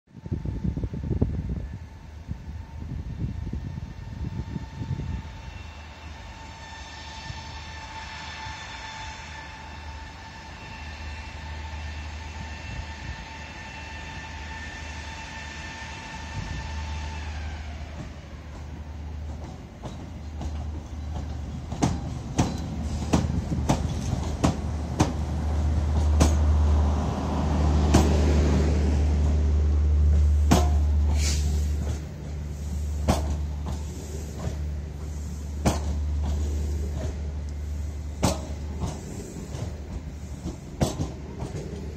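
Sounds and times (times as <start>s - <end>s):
locomotive whine: 0.1s - 41.9s
locomotive rumble: 0.2s - 41.9s
wheels clacking over rail joints: 17.9s - 41.9s.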